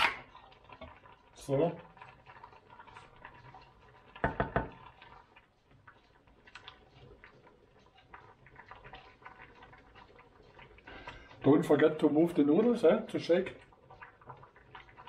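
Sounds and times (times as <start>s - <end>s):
wooden spoon stirring in pot: 0.0s - 15.0s
utensil knocks: 4.2s - 4.7s.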